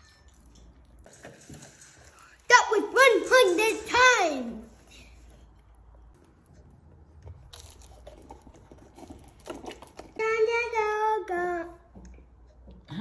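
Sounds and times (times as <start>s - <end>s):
child's voice: 2.5s - 4.8s, 10.2s - 11.9s.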